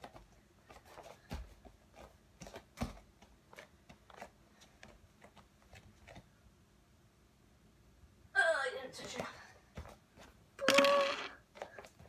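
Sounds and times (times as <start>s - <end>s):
bare feet tapping on a mat: 0.0s - 6.3s, 9.1s - 10.4s
light thuds of feet landing: 0.0s - 6.3s.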